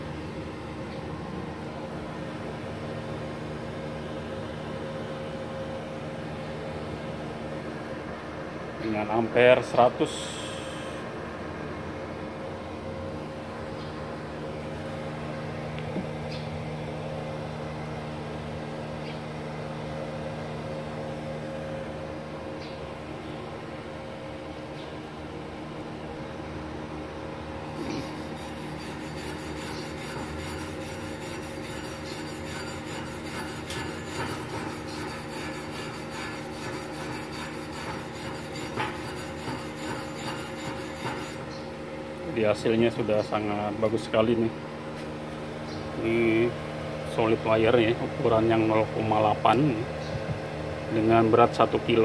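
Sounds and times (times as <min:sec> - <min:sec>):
welder hum and fan noise: 0:00.0 - 0:52.0
wire brush scraping metal: 0:27.8 - 0:41.5.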